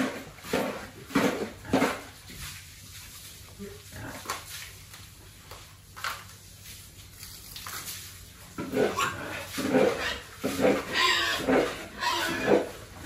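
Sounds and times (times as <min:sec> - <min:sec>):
pigs grunting: 0:00.0 - 0:02.1, 0:03.8 - 0:04.4, 0:08.6 - 0:13.0.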